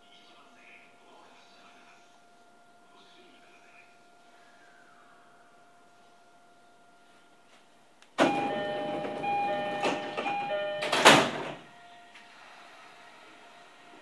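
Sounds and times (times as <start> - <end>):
train doors sliding: 8.2 - 11.7
electronic door chime: 8.2 - 12.0.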